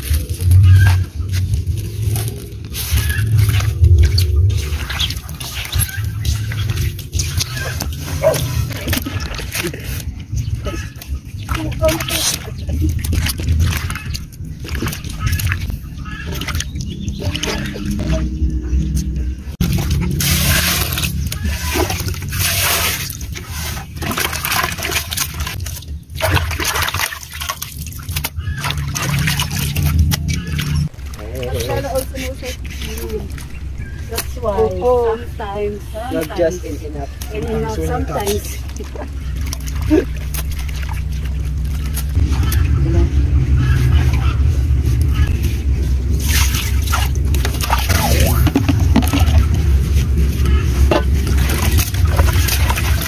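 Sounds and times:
water pouring and splashing in a pot: 0.0 - 10.1, 11.3 - 18.3, 19.6 - 34.5, 46.1 - 53.0
steady low rumble: 0.0 - 53.0.

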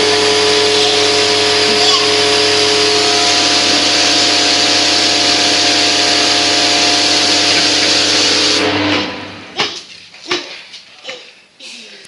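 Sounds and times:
water hissing from spray wand: 0.0 - 8.6
pressure pump hum: 0.0 - 10.0.

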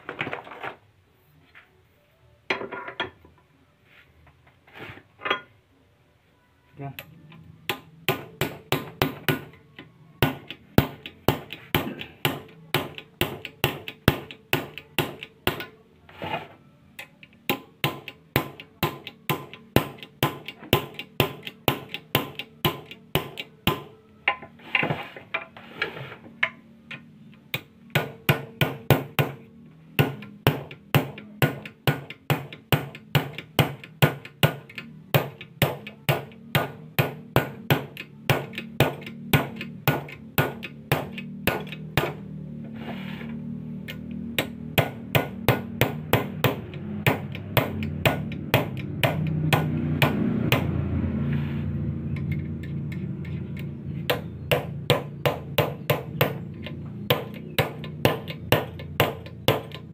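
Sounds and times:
hammer striking metal punch: 7.0 - 9.6, 10.2 - 15.8, 17.0 - 24.5, 27.5 - 29.4, 30.0 - 42.3, 43.9 - 50.8, 53.5 - 59.9.

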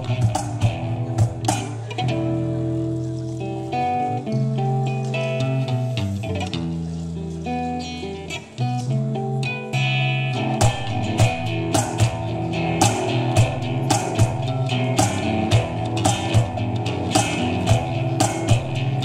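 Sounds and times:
cajon strikes: 0.0 - 2.2, 9.8 - 19.0
acoustic guitar strumming: 0.0 - 19.0
electric bass notes: 0.0 - 19.0.

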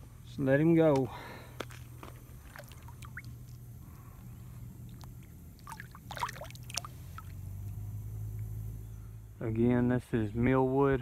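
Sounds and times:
steady low hum: 0.0 - 11.0
water splashing and sloshing: 1.6 - 4.2, 4.8 - 7.5.

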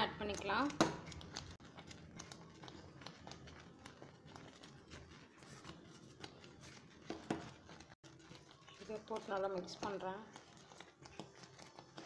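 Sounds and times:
mixture bubbling: 0.0 - 12.0.

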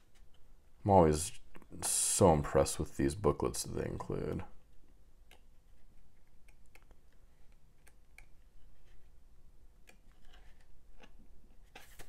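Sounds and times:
paper pages flipping: 9.8 - 12.0.

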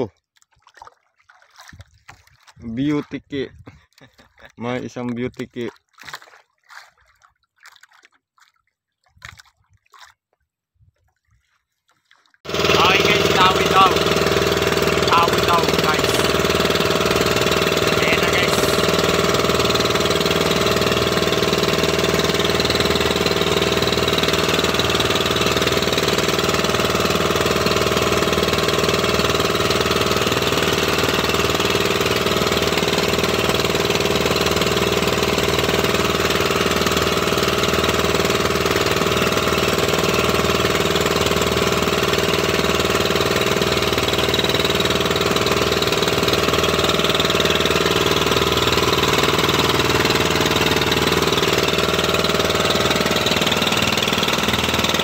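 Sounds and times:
boat engine running: 0.0 - 10.1, 12.4 - 55.0.

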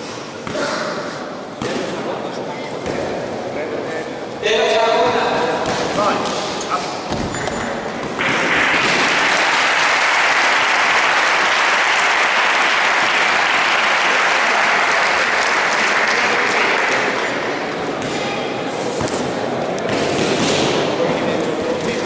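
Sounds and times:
crowd applauding: 8.2 - 17.7.

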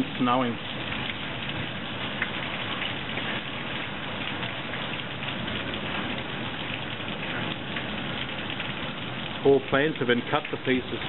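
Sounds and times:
hail and rain pelting roofs: 0.0 - 11.0.

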